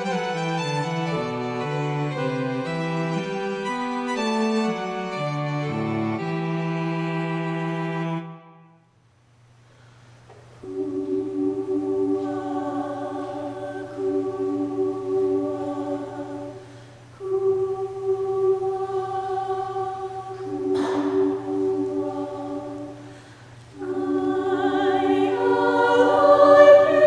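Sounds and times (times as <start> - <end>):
instrumental music: 0.0 - 8.9
faint low hum: 0.0 - 27.0
women's chorus singing: 10.6 - 27.0.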